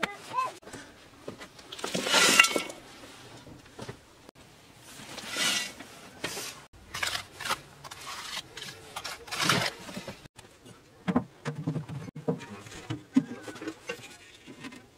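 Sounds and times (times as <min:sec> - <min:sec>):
trowel scraping wet plaster: 0:05.2 - 0:10.2.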